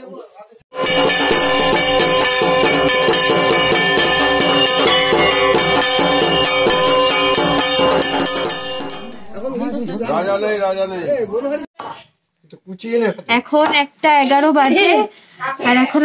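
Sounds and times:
metal gong beaten with mallet: 0.8 - 10.2.

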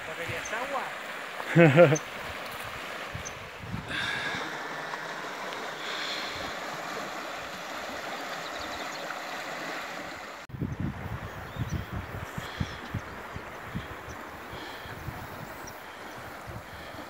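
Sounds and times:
water rushing over rubble: 0.0 - 10.5.

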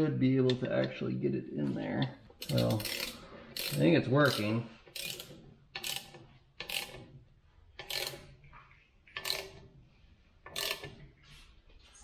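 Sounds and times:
ratchet wrench clicking: 2.4 - 7.0, 7.8 - 8.3, 9.2 - 9.6, 10.4 - 11.0.

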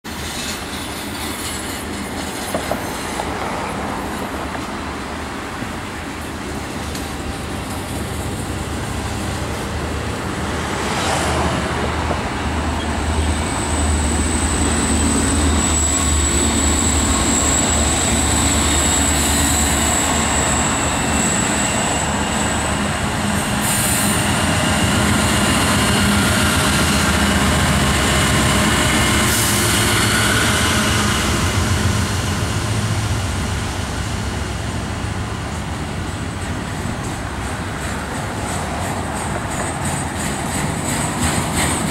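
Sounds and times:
train wheel and rail noise: 0.0 - 41.9
diesel locomotive engine rumble: 0.1 - 41.9
high wheel squeal: 12.6 - 32.4.

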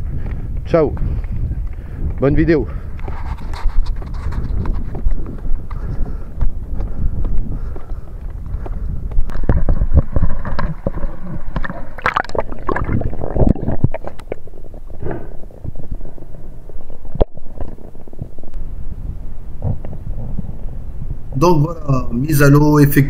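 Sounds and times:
muffled underwater sloshing: 9.6 - 18.3.

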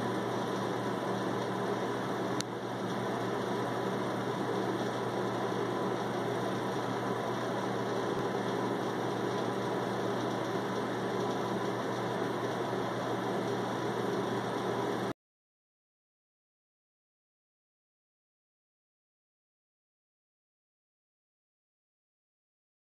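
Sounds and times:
mechanical hum and hiss: 0.0 - 15.1.

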